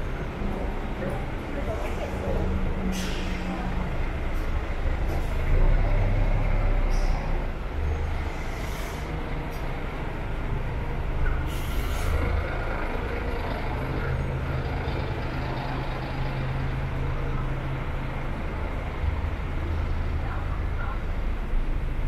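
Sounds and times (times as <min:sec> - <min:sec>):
road noise: 0:00.0 - 0:22.0.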